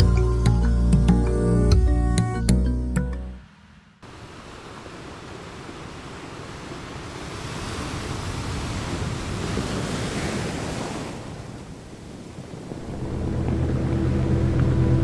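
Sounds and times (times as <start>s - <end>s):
sea surf washing ashore: 3.6s - 15.0s
wind rumbling on microphone: 4.4s - 15.0s.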